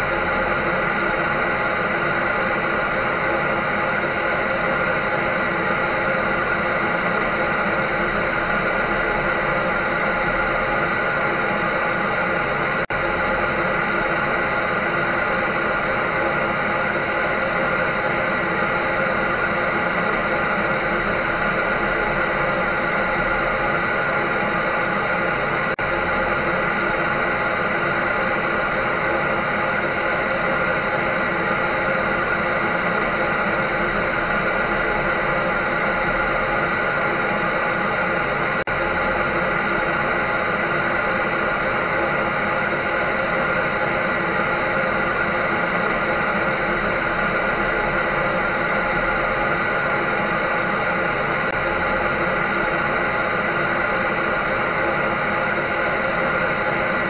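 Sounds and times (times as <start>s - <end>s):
electric dryer running: 0.0s - 57.0s.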